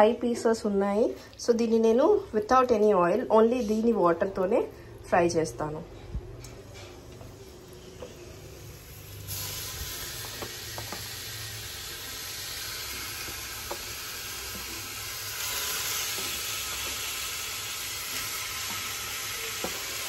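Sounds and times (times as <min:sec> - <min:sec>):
chicken sizzling in a pan: 0:08.2 - 0:20.0.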